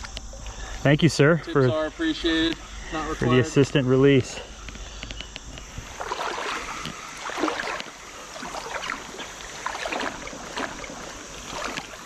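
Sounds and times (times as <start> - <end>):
river water sloshing and splashing: 5.5 - 12.0.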